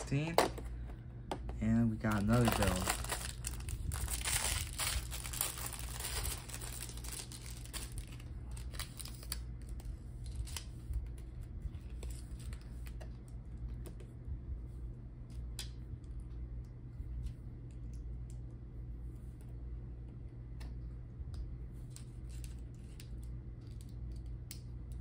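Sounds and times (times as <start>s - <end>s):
plastic bag crinkling: 2.0s - 9.4s.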